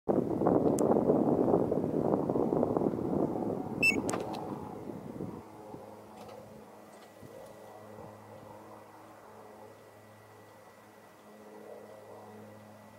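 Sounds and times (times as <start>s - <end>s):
short high beep: 3.8s - 4.1s.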